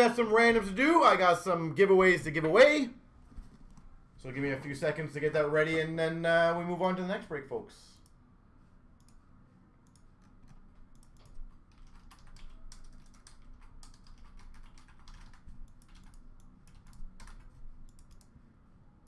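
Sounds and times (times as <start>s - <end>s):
low steady hum: 0.0s - 19.0s
typing on a keyboard: 9.9s - 18.3s.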